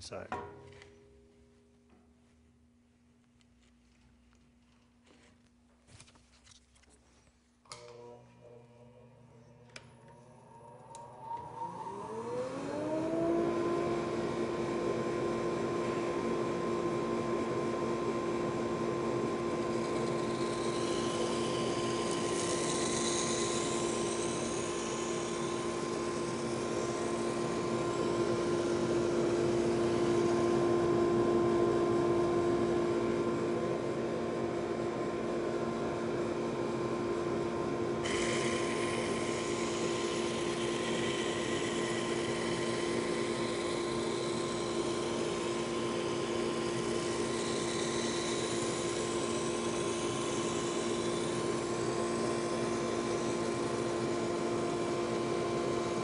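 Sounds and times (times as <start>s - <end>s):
sander motor humming: 7.7s - 31.8s, 38.0s - 56.0s.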